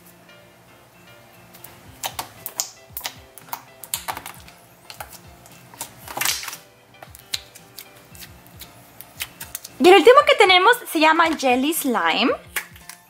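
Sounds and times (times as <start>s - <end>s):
background music: 0.0s - 13.0s
slime squish: 1.6s - 9.8s
slime wet clicks and pops: 2.0s - 5.1s, 6.1s - 6.6s, 7.2s - 7.5s.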